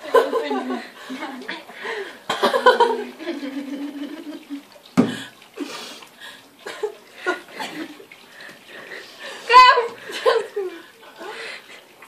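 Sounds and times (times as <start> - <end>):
women giggling: 0.0 - 1.7, 2.4 - 4.6, 10.0 - 11.3.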